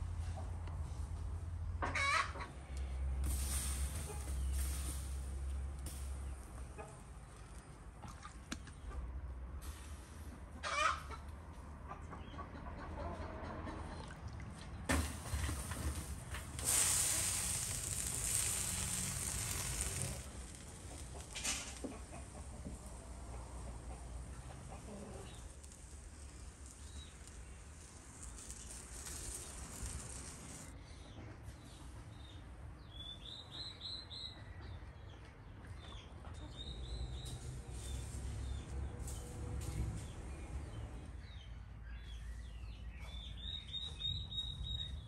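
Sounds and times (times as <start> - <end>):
dough sizzling on hot clay: 3.1 - 7.7, 14.9 - 30.8, 36.8 - 40.7
small birds chirping: 16.6 - 45.0.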